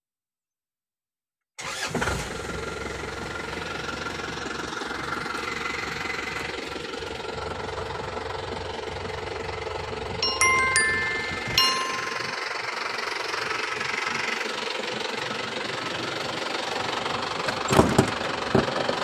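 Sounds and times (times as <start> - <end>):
diesel engine idling: 2.6 - 10.2, 12.4 - 19.0.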